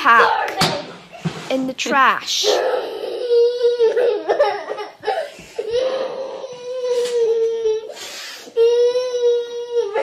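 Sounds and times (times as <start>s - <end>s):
girl crying in a tantrum: 2.4s - 10.0s.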